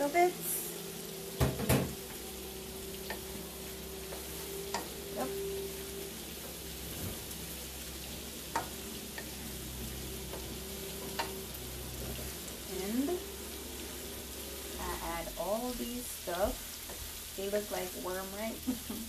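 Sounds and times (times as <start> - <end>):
vegetables sizzling in a frying pan: 0.0 - 19.0
spatula clacking against pan: 8.5 - 9.3.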